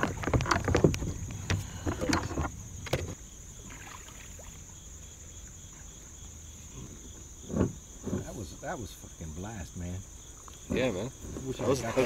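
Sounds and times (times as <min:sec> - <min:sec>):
paddle knocking against kayak: 0:00.0 - 0:03.3
crickets chirring: 0:00.0 - 0:12.0.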